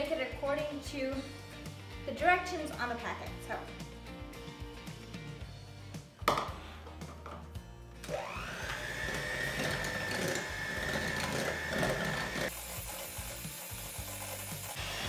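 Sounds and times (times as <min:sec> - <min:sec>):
electric hand mixer whine: 0:08.0 - 0:15.0.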